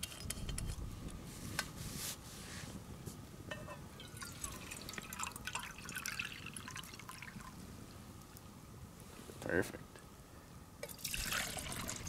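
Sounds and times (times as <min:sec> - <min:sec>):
water trickling into pot: 0:04.0 - 0:07.6, 0:10.8 - 0:12.0.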